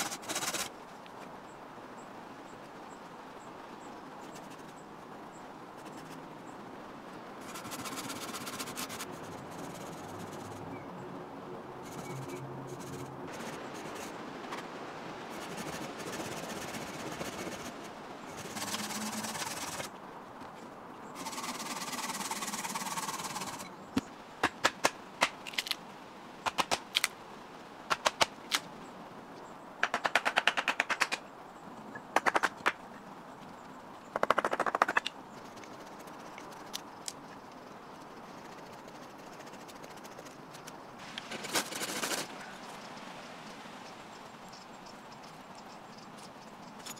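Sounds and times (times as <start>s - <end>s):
rasping on a stick: 15.4s - 19.9s.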